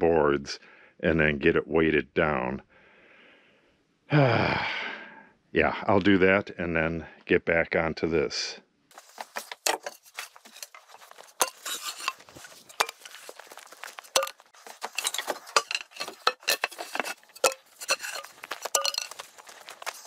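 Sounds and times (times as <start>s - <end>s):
small metal objects clinking: 9.6s - 20.0s.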